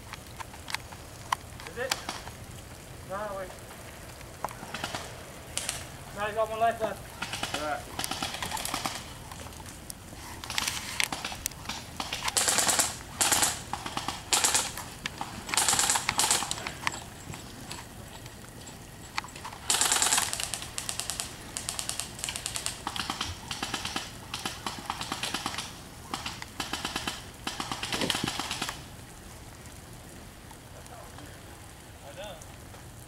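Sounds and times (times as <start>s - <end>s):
airsoft guns firing bursts: 4.6s - 5.9s, 7.2s - 9.1s, 11.1s - 16.9s, 19.6s - 28.9s.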